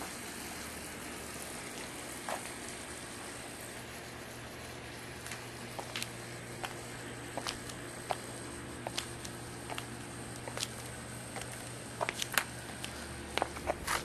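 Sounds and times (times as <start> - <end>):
steady low hum: 0.0 - 14.0
footsteps on pool deck: 1.6 - 2.6, 5.2 - 14.0.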